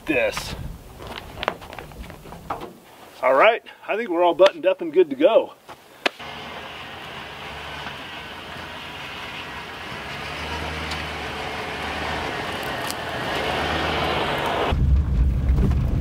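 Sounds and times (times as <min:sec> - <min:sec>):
tyres on snowy track: 0:05.7 - 0:16.0
truck engine hum: 0:06.2 - 0:14.8.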